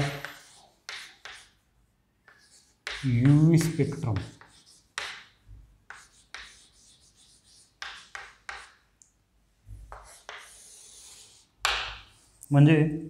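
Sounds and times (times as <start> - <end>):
chalk scratching on chalkboard: 0.0 - 8.8, 9.7 - 12.5.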